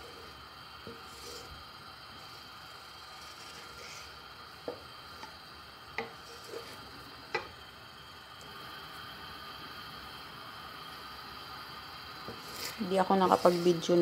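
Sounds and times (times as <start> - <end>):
faint hiss: 0.0 - 14.0
wooden spatula knocking on pan: 4.6 - 4.8, 6.0 - 6.2.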